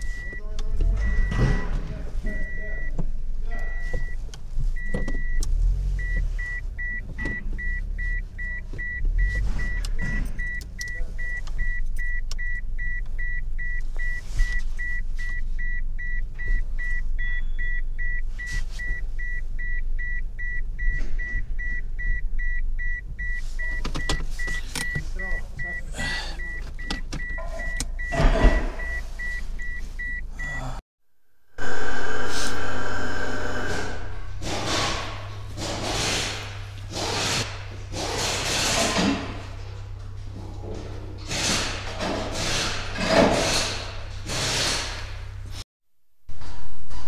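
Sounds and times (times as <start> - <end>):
car electronic beeper: 0.0 - 4.2, 4.8 - 30.7, 31.6 - 37.4.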